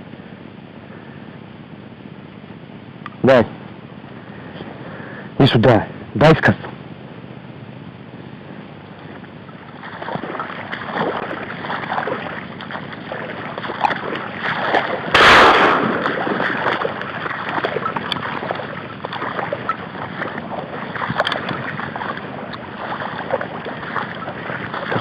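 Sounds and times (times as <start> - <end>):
footsteps wading through water: 8.9 - 25.0
sudden loud blast: 15.1 - 16.5.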